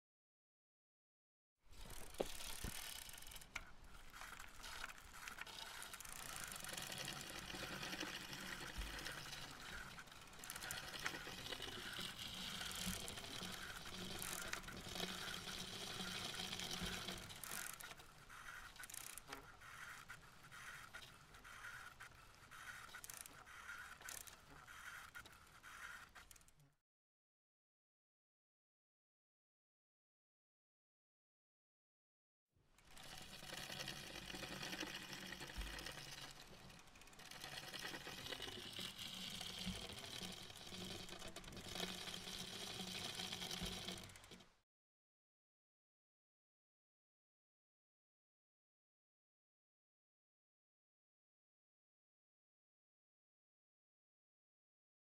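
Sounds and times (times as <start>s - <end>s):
bicycle rattles and clicks: 1.7s - 26.6s, 32.8s - 44.5s.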